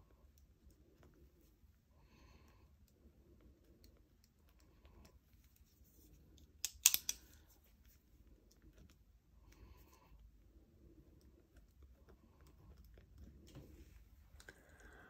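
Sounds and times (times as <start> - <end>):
multi-pen clicking: 6.3 - 7.4.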